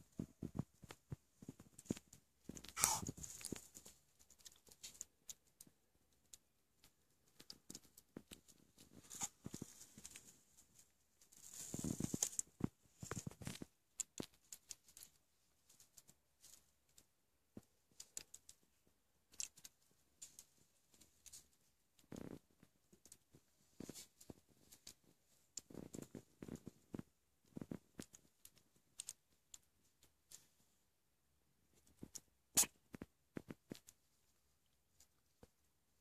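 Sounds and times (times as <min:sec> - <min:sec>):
kitten claws scratching and rustling: 0:00.0 - 0:30.9, 0:31.6 - 0:35.7.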